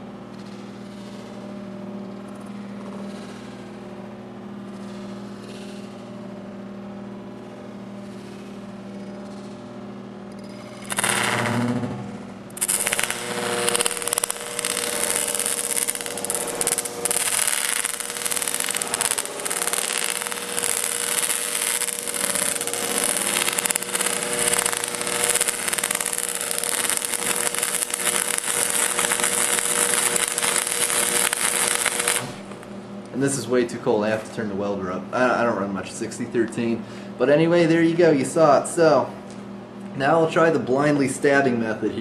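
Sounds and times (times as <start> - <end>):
welder hum: 0.0 - 42.0
welding arc crackling: 10.7 - 34.5.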